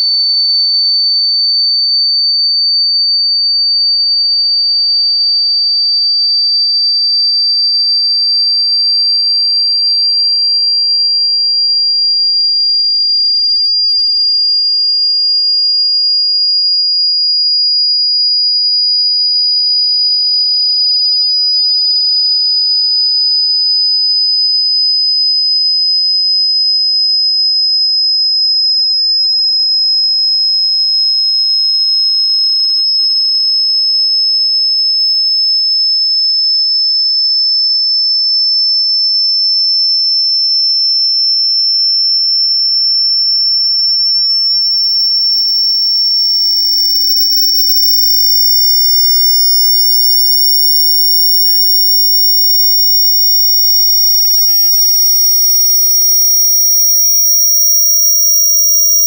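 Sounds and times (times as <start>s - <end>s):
high-pitched sine tone sweep: 12.1s - 16.3s, 26.7s - 59.0s.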